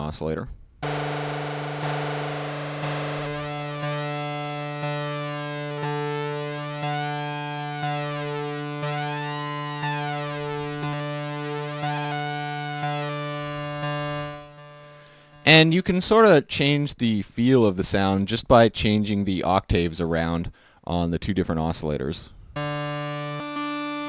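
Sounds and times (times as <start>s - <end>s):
low sawtooth synthesizer note: 0.8s - 15.5s, 22.6s - 24.0s.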